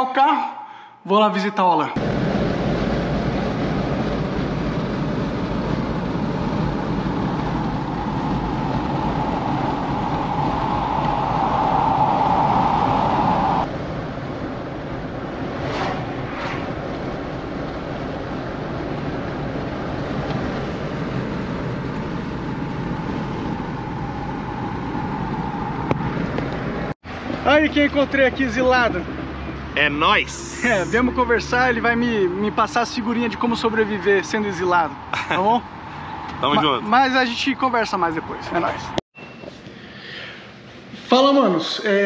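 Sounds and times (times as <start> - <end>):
hum: 2.0 - 27.0
road and engine drone in car: 2.0 - 39.0.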